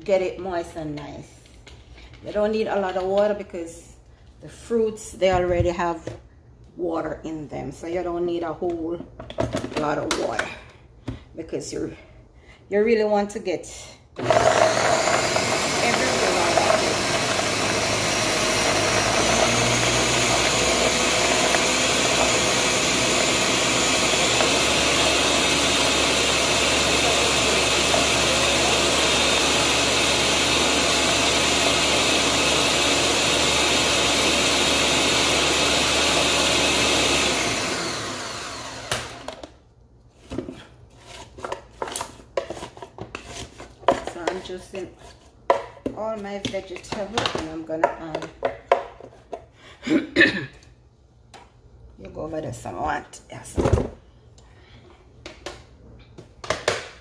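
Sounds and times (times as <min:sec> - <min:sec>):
blender motor running: 0:14.2 - 0:39.4.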